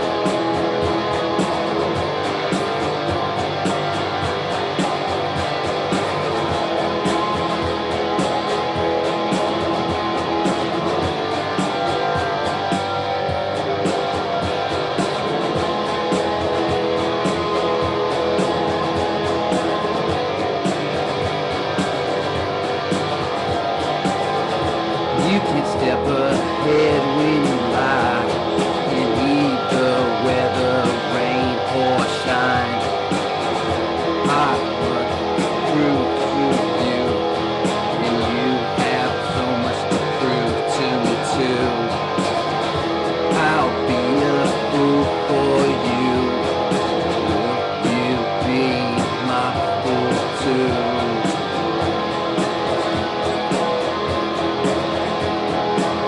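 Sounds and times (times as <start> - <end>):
strummed guitar: 0.0 - 56.0.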